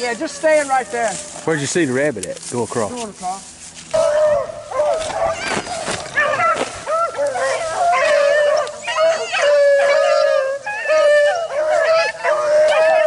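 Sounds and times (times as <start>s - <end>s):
dogs baying and howling: 3.9s - 13.0s.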